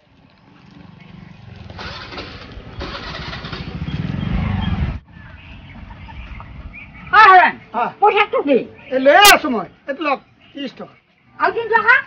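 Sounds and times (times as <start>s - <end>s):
vehicle engine running: 0.0s - 6.6s.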